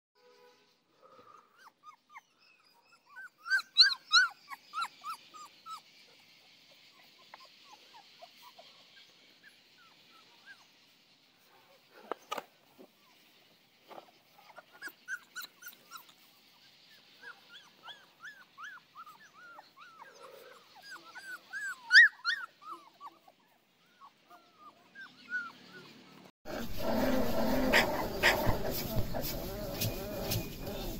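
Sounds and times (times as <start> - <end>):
puppies whimpering and yipping: 1.5 - 5.9, 14.4 - 30.9.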